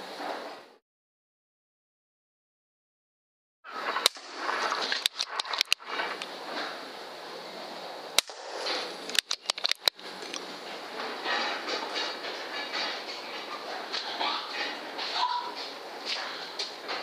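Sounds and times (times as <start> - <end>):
steady hiss: 3.7 - 17.0
sharp clicks: 4.0 - 6.3, 9.0 - 10.5.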